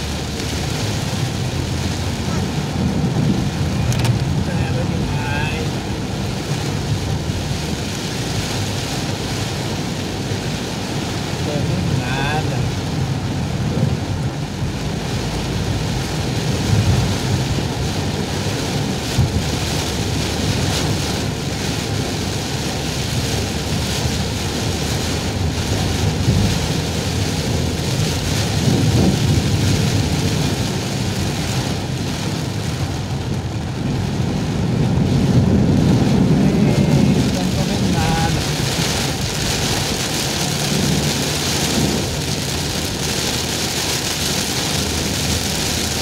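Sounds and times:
heavy rain on car roof: 0.0 - 46.0.

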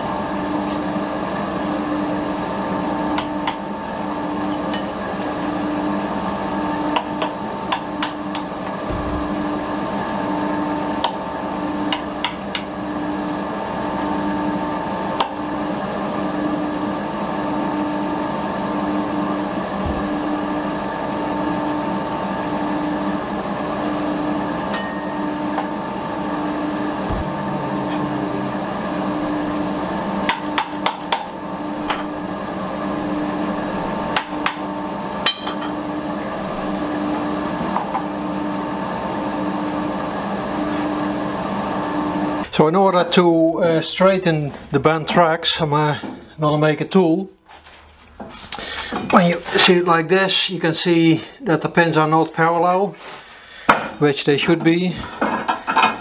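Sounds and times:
metal lathe whining: 0.0 - 42.5.

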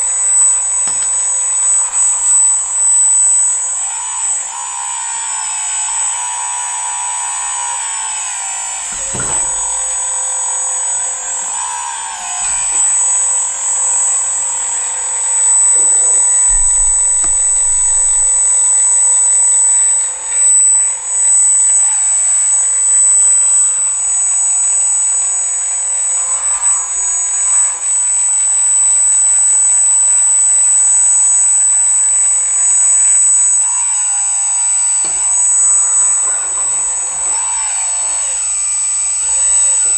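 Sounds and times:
electric hydraulic pump whining: 0.0 - 39.9.

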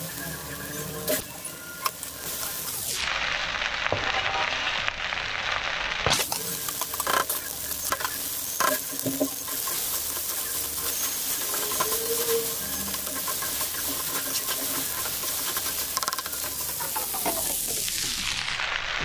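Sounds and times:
rice sizzling in a pan: 0.0 - 19.0
spatula scraping a metal pan: 6.3 - 17.4.

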